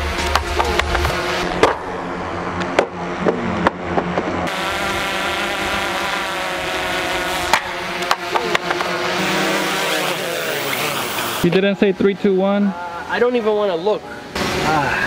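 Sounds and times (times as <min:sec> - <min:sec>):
drone propellers humming: 0:00.0 - 0:13.1
sharp knocks: 0:07.5 - 0:09.0.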